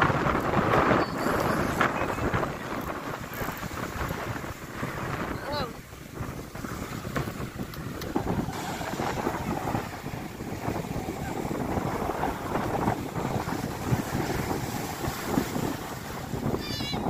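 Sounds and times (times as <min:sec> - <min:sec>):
surf breaking on pebble beach: 0:00.0 - 0:16.7
wind buffeting microphone: 0:00.0 - 0:17.0.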